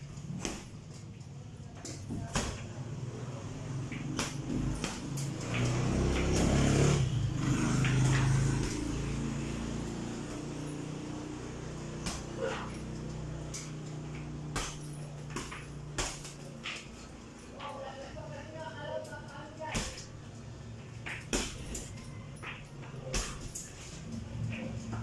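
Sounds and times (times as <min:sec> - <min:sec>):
punches thudding on heavy bag: 0:00.3 - 0:00.9, 0:02.0 - 0:02.7, 0:04.1 - 0:05.6, 0:12.0 - 0:12.9, 0:14.4 - 0:16.6, 0:21.1 - 0:23.6.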